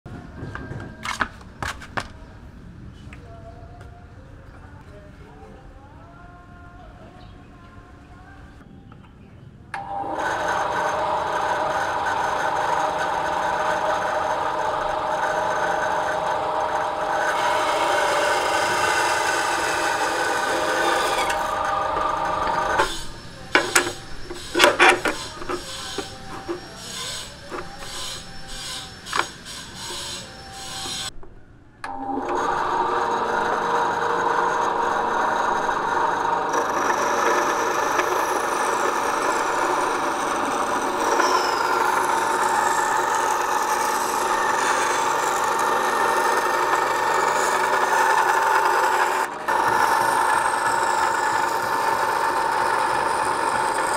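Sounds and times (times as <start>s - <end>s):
band saw whine: 9.8s - 31.1s, 31.8s - 53.9s
wood knocks and scrapes: 22.0s - 26.7s.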